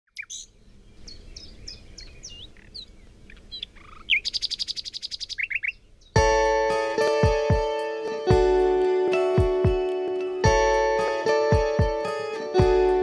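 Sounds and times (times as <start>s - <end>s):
bird chirping and trilling: 0.1s - 6.2s.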